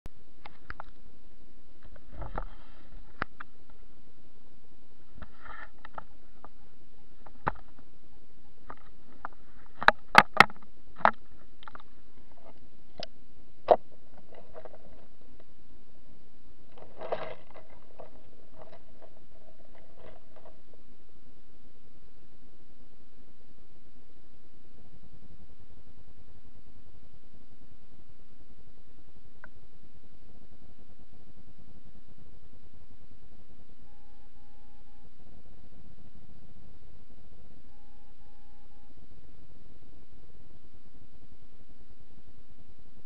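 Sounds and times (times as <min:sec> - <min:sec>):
low underwater hum: 0:00.0 - 0:43.0
soft crackling: 0:00.1 - 0:43.0
small underwater clicks: 0:00.4 - 0:01.0, 0:08.6 - 0:15.5.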